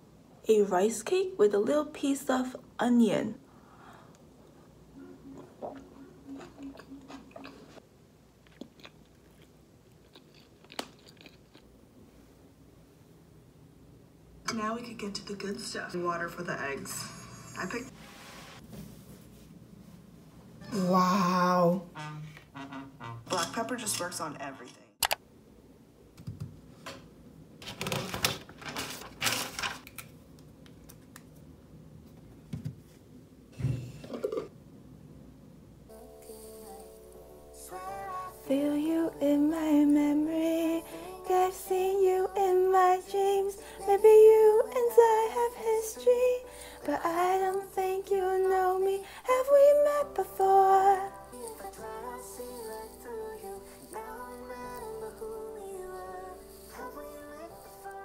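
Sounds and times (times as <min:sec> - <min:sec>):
chewing and crunching food: 0:05.4 - 0:11.8.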